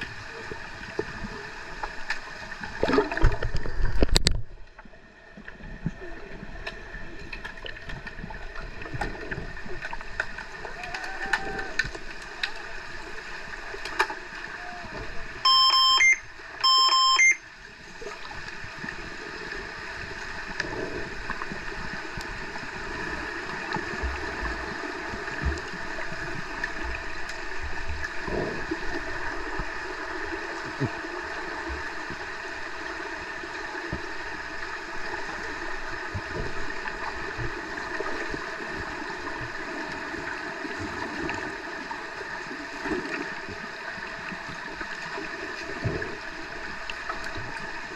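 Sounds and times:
underwater water movement: 0.0s - 47.9s
bubbles: 2.7s - 4.5s
electronic beeps underwater: 15.4s - 17.4s.

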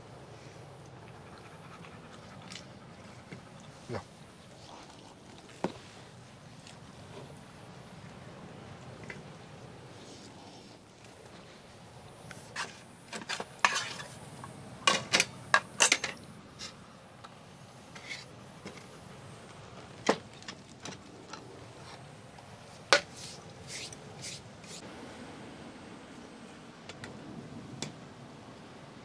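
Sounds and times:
utensils clinking against pots: 13.2s - 14.1s, 14.9s - 16.2s.

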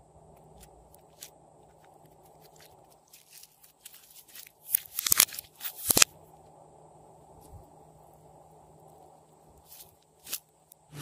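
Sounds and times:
slime crackling and popping: 0.4s - 6.1s.

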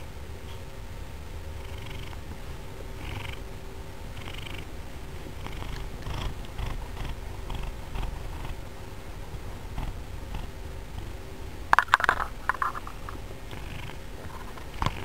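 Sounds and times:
cat purring: 0.0s - 15.0s.

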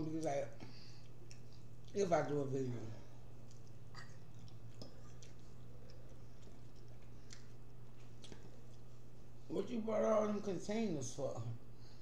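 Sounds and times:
chewing: 0.2s - 2.1s, 3.1s - 9.2s.

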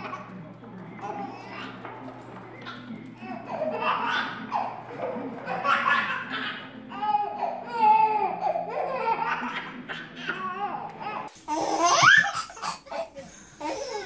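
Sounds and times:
baby laughing and squealing: 2.6s - 13.0s.

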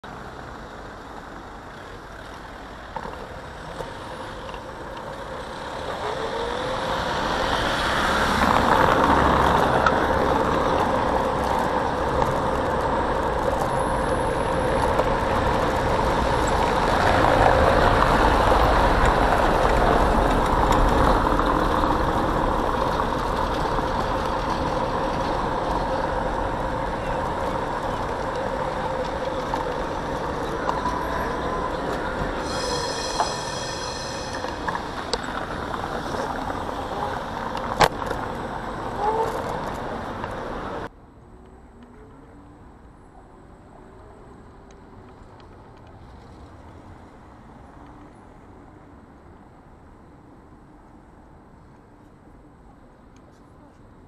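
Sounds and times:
road rumble: 0.0s - 54.0s
rush of wind: 0.3s - 54.0s.

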